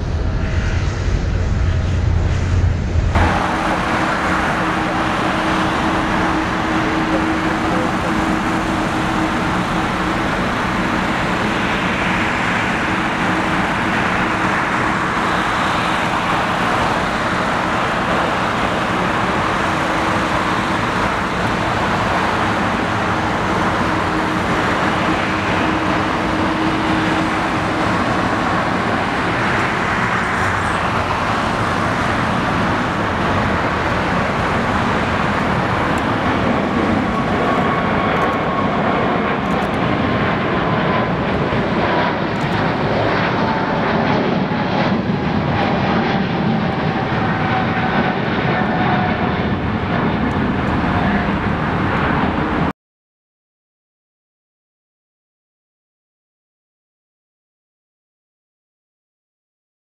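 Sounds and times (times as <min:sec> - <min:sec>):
constant hum: 0:00.0 - 0:52.7
traffic roar: 0:00.0 - 0:52.7.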